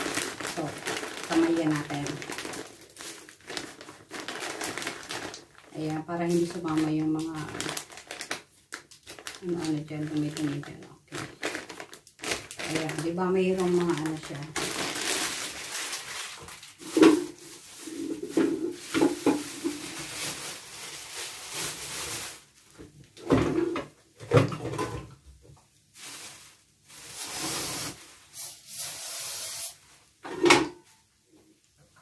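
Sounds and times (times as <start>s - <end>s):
knocks and clunks of handling: 22.8s - 25.2s
hiss: 27.1s - 29.8s.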